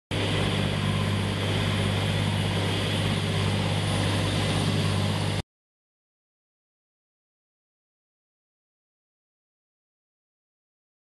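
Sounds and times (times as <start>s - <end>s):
boat engine humming: 0.1s - 5.4s
water rushing along hull: 0.2s - 5.4s.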